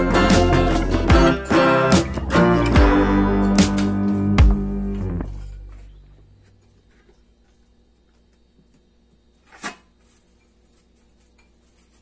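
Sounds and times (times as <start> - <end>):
guitar music: 0.0 - 6.4.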